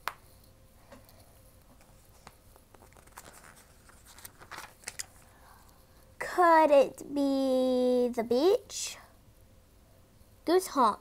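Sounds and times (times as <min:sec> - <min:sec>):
book being handled: 0:01.7 - 0:05.3.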